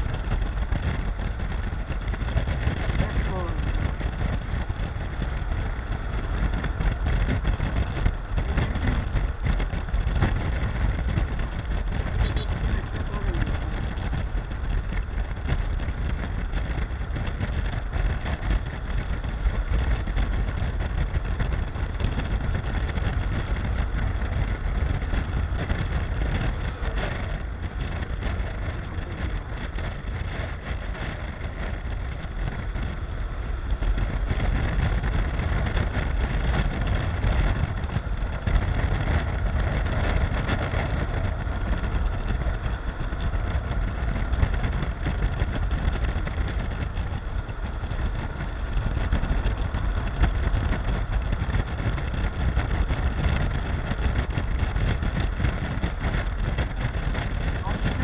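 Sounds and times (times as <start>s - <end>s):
motorcycle engine running: 0.0s - 58.0s
wind rush on microphone: 0.0s - 58.0s.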